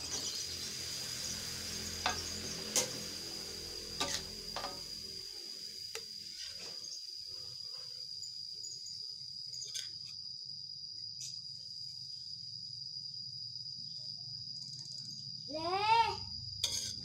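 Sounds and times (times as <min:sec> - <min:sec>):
cricket trilling: 0:00.0 - 0:17.0
metal spatula scraping in wok: 0:01.0 - 0:03.3, 0:03.9 - 0:04.9, 0:16.6 - 0:17.0.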